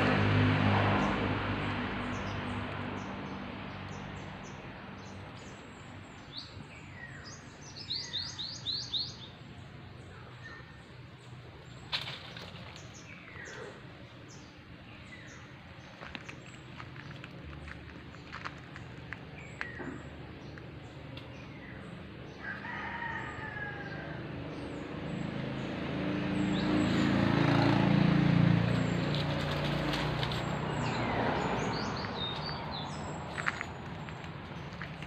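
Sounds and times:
small birds chirping: 0:01.6 - 0:22.6, 0:24.6 - 0:35.0
rooster crowing: 0:22.4 - 0:24.3.

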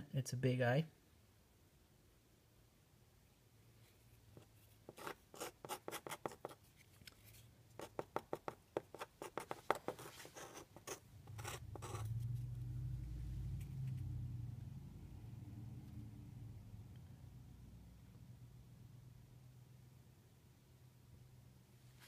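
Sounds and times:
hand tool scratching paint: 0:04.9 - 0:06.6
steady low hum: 0:09.2 - 0:21.5.

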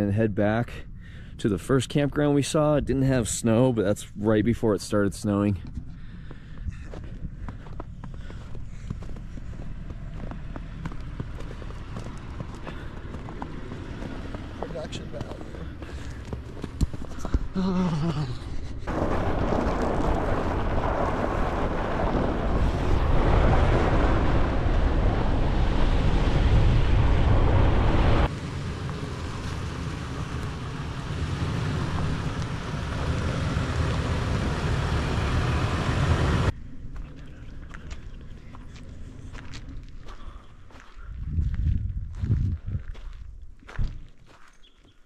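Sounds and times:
vehicle rumble: 0:00.0 - 0:44.3
wind buffeting microphone: 0:40.7 - 0:44.1.

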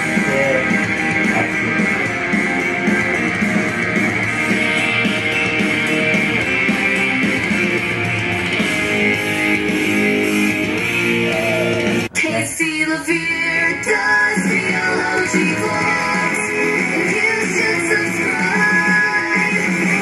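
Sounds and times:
guitar song through loudspeaker: 0:00.0 - 0:20.0.

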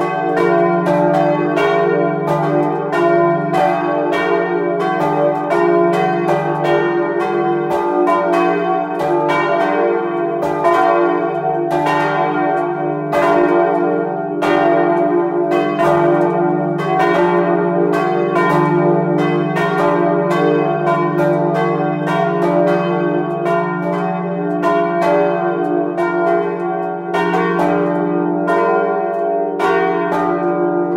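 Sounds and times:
church bells pealing: 0:00.0 - 0:30.9.

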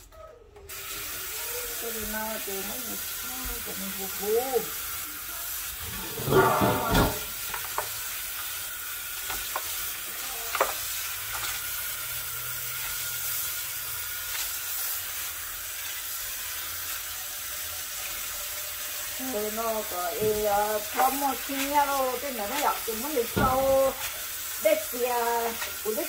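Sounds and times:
faucet running into basin: 0:00.7 - 0:11.4.

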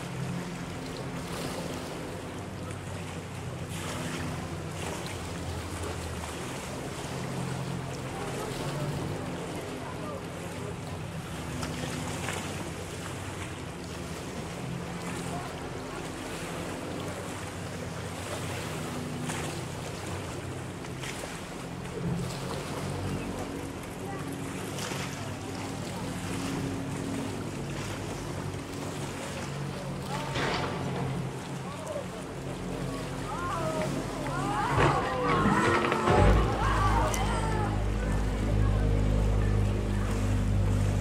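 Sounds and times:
motorboat engine droning: 0:00.0 - 0:41.0
water noise: 0:00.0 - 0:41.0.

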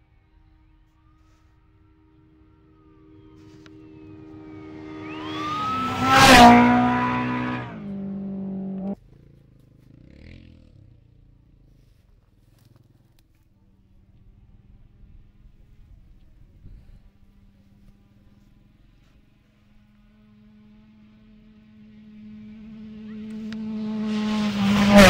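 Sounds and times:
off-road vehicle passing by: 0:00.0 - 0:25.0
rush of tyres and dirt: 0:00.8 - 0:25.0.

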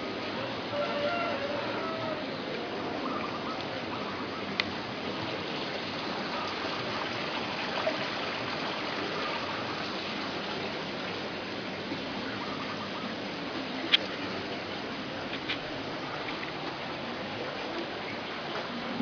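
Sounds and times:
water splashing into pond: 0:04.4 - 0:19.0.

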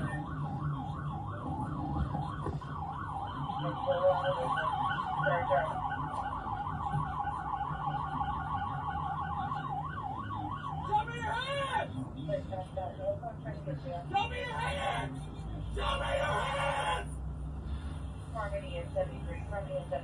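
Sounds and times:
police siren yelping: 0:00.0 - 0:11.9.

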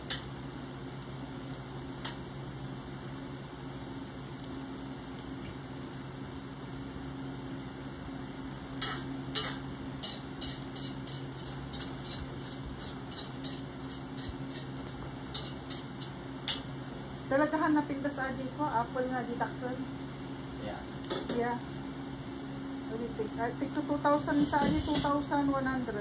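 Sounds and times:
steady low hum: 0:00.0 - 0:26.0
birds pecking seed on tabletop: 0:03.0 - 0:16.7.

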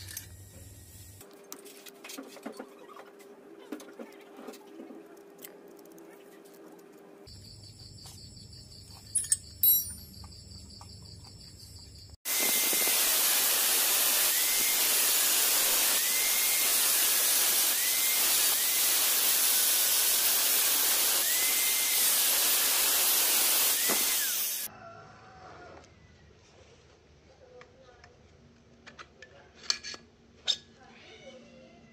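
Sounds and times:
angle grinder cutting metal: 0:12.3 - 0:24.7.

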